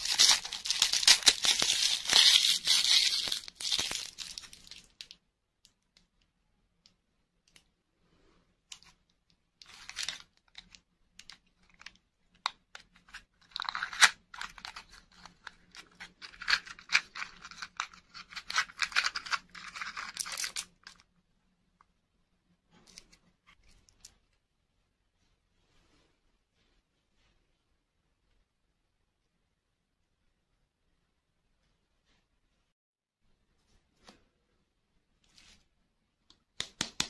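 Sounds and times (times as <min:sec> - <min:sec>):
paper crinkling: 0:00.0 - 0:05.1, 0:13.0 - 0:21.0.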